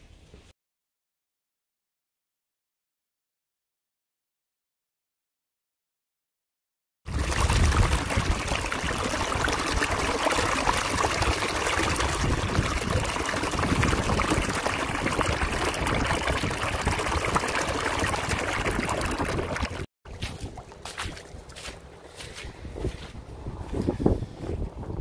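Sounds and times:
water gushing from drain outlet: 0:07.1 - 0:19.9
water splashing on wet ground: 0:07.1 - 0:21.9.

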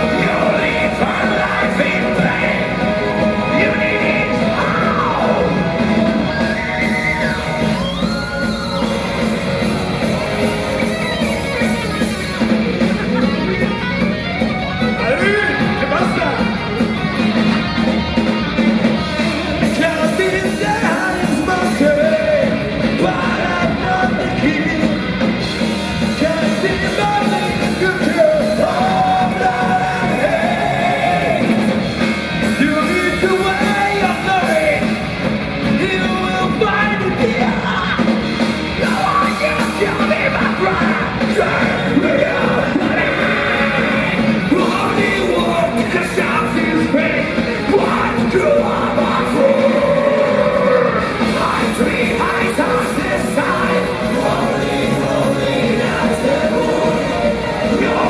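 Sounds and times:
bass guitar: 0:00.0 - 0:58.0
electric guitar: 0:00.0 - 0:58.0
keyboard: 0:00.0 - 0:58.0
sung and yelled lead vocal: 0:00.0 - 0:58.0.

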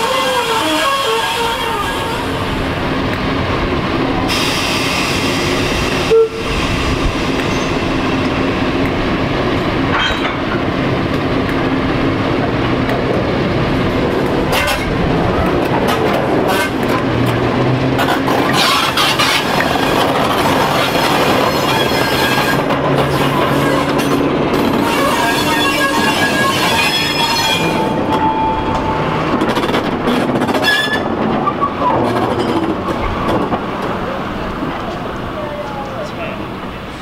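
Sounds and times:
diesel locomotive engine running: 0:00.0 - 0:37.0
wheels and wagons clanking: 0:09.8 - 0:10.8.

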